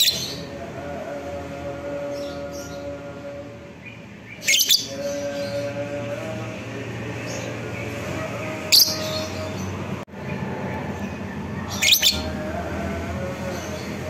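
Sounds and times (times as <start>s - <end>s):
bird shrill chirps: 11.7s - 12.3s.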